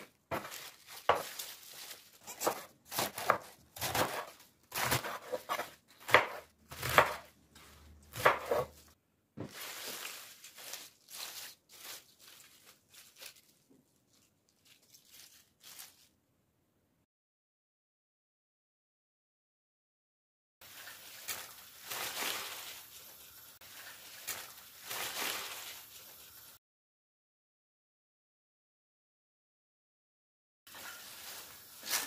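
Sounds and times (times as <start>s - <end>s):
knife chopping cabbage: 0.0s - 12.0s
cabbage leaves rustling: 0.0s - 16.2s, 20.6s - 26.6s, 30.7s - 32.0s.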